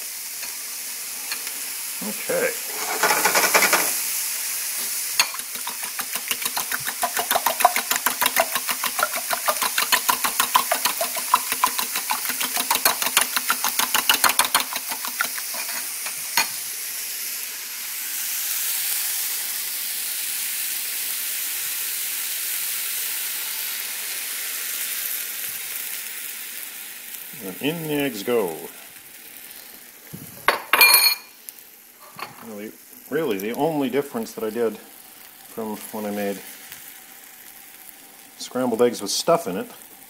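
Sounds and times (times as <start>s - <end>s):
food sizzling in oil: 0.0s - 40.0s
fork beating eggs in bowl: 5.2s - 16.5s.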